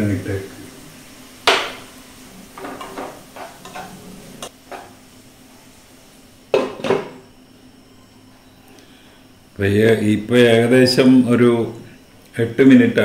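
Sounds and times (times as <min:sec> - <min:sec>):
utensil scraping pan: 0:01.6 - 0:04.5.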